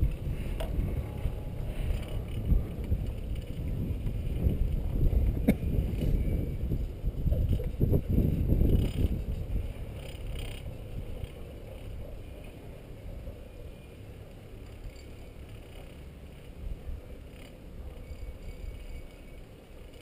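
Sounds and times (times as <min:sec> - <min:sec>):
wind buffeting microphone: 0:00.0 - 0:13.8
chairlift rumble: 0:00.0 - 0:20.0.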